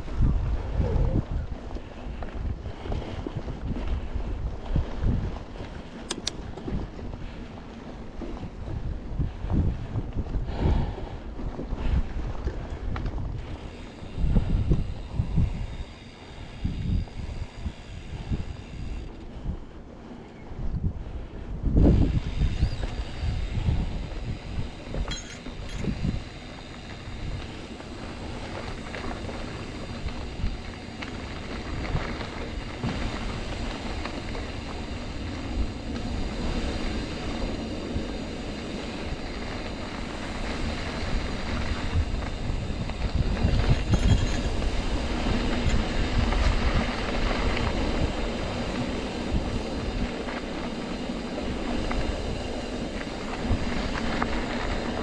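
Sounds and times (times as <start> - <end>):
bike tyres rumbling on dirt: 0.0 - 55.0
wind buffeting microphone: 0.0 - 55.0.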